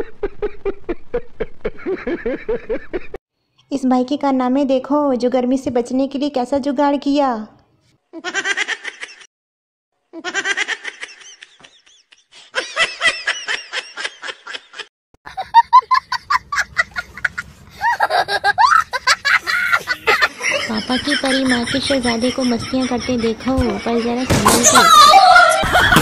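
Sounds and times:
person laughing: 0.0s - 3.2s, 10.2s - 26.0s.

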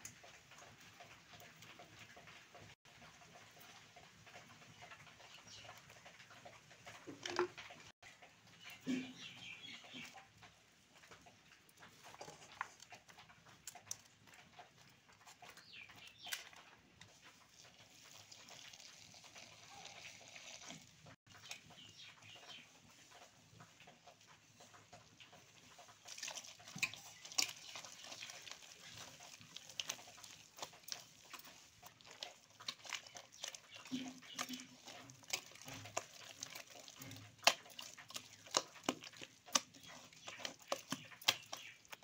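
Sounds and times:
hand mixing food in a steel bowl: 0.0s - 42.0s.

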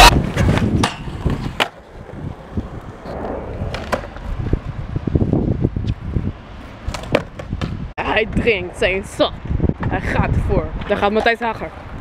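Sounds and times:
skateboard clacking on ground: 0.0s - 2.5s, 3.7s - 4.2s
skateboard wheels rolling on concrete: 0.0s - 12.0s.

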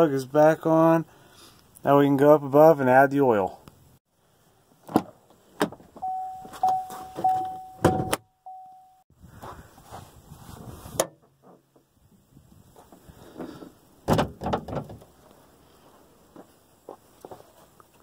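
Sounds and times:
warning chime: 6.0s - 9.0s.

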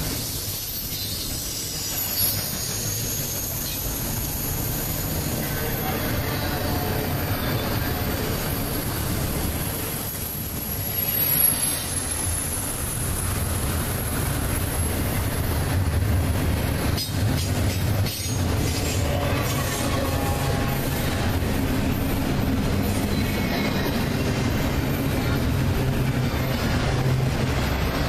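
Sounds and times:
train wheels rumbling on rails: 0.0s - 28.0s
high-pitched wheel squeal: 0.1s - 8.3s.

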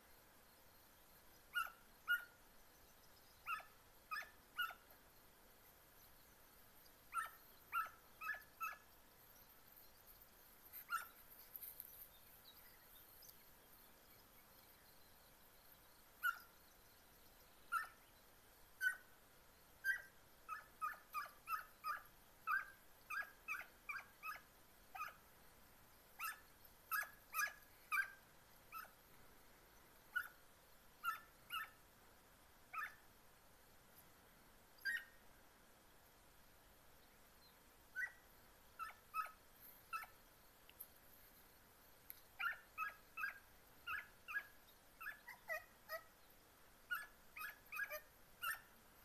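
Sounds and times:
puppies yelping: 3.5s - 4.8s, 7.1s - 8.8s, 10.9s - 11.1s, 26.2s - 28.9s, 38.8s - 40.1s, 42.4s - 46.1s, 46.9s - 48.6s.

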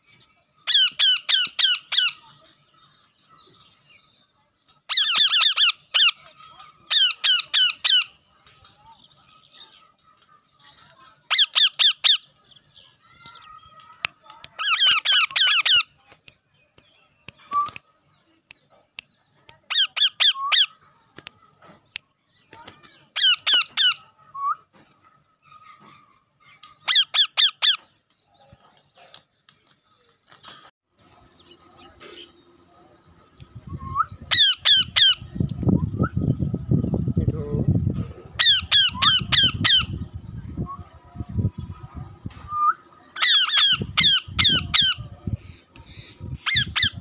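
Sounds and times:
parakeets screeching: 0.7s - 2.3s, 4.9s - 6.2s, 6.9s - 8.2s, 11.3s - 12.3s, 14.6s - 15.9s, 26.8s - 27.8s, 34.3s - 35.4s, 38.3s - 40.1s, 43.2s - 47.0s.

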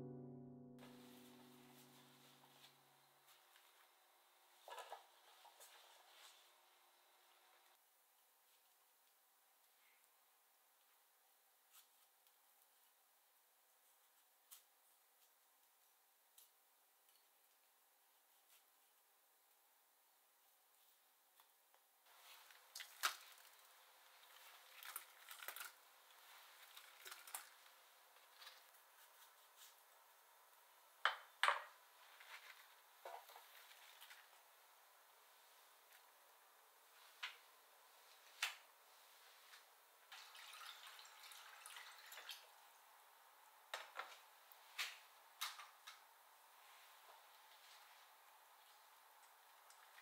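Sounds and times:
faucet running into a bowl: 40.2s - 42.5s.

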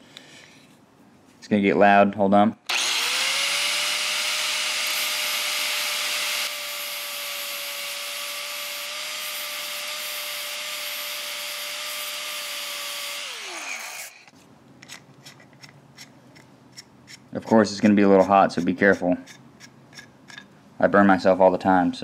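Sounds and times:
angle grinder whining: 2.7s - 14.3s.

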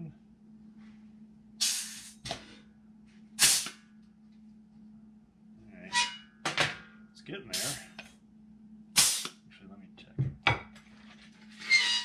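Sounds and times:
rivet squeezer air hiss: 1.6s - 2.2s, 3.4s - 3.8s, 9.0s - 9.3s.

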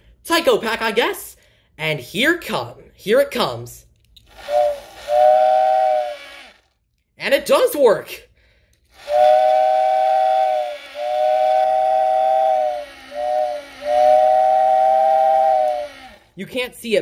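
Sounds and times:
two-note steam whistle blasts: 4.5s - 6.5s, 9.0s - 16.2s.

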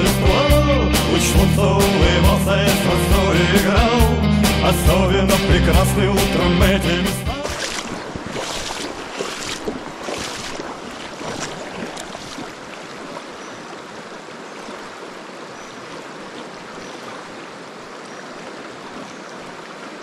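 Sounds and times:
river rushing over stones: 7.3s - 20.0s.

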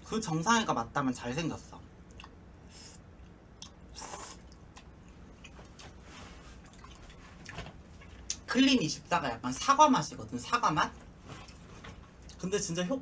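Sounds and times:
chewing: 2.1s - 2.4s, 3.2s - 6.0s, 6.6s - 8.4s
slurping noodles: 3.9s - 4.6s.

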